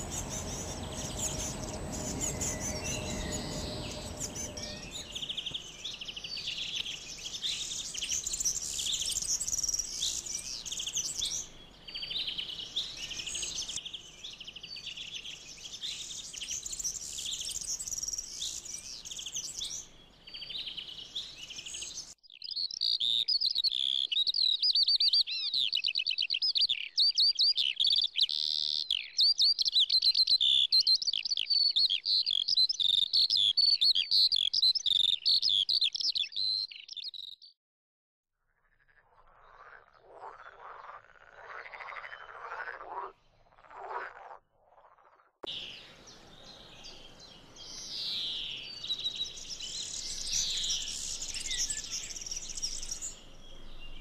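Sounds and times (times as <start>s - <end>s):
bird singing rapid notes: 0.0s - 13.9s, 45.5s - 54.0s
songbirds singing and chirping: 0.0s - 37.5s, 41.6s - 43.8s, 45.4s - 54.0s.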